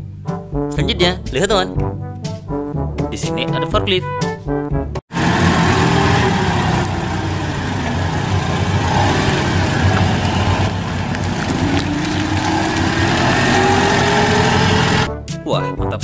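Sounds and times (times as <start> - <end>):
forklift engine running: 5.1 - 15.1.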